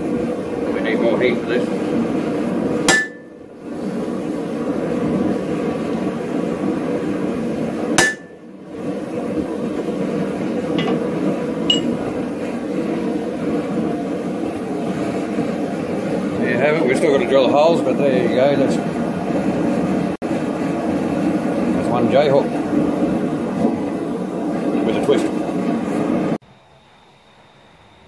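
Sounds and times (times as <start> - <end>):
hammer striking metal on anvil: 2.9 - 3.3, 8.0 - 8.4, 10.8 - 11.1, 11.7 - 12.0.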